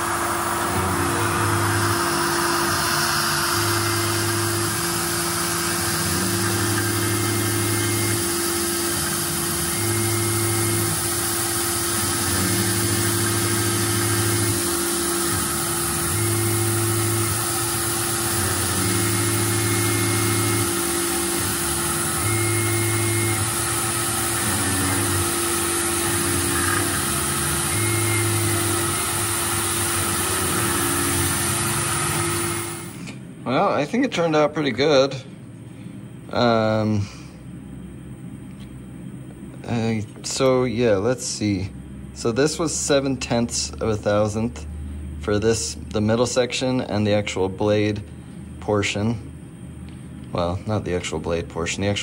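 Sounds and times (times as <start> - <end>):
milling machine spindle whine: 0.0 - 34.4
lower machine hum: 0.0 - 52.0.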